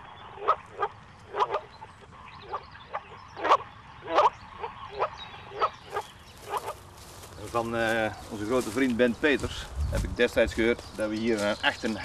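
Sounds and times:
frogs calling through phone speaker: 0.3s - 8.8s.

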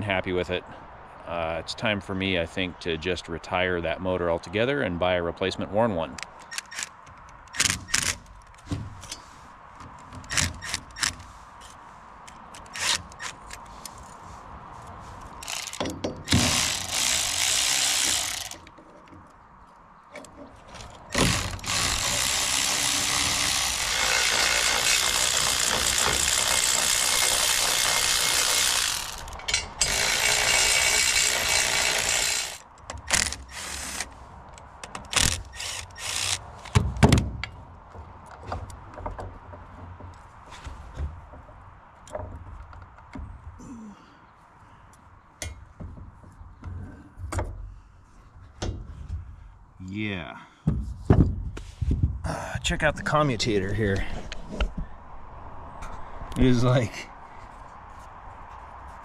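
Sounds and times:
electric ratchet running: 15.4s - 18.6s, 21.1s - 34.1s, 35.1s - 36.4s
tool clicks and metal clinks: 15.4s - 18.7s, 21.1s - 34.1s.

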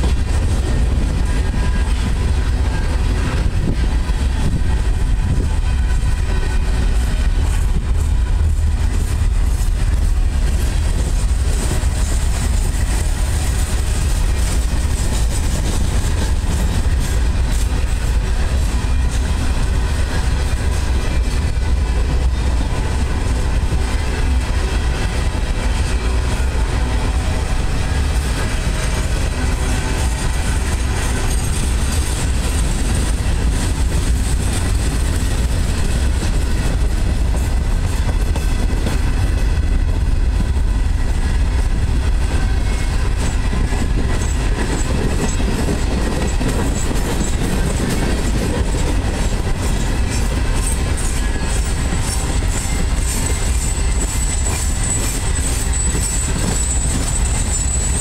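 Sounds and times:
train wheels rumbling on rails: 0.0s - 58.0s
high-pitched wheel squeal: 50.2s - 58.0s.

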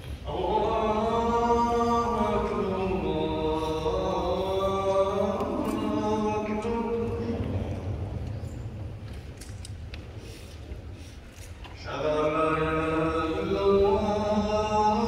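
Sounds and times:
solo voice chanting: 0.0s - 8.0s, 11.8s - 15.0s.

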